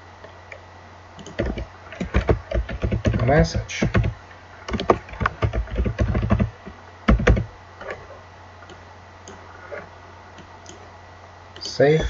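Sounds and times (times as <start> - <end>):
steady low hum: 0.0 - 12.0
computer keyboard typing: 1.2 - 6.5, 7.1 - 7.5.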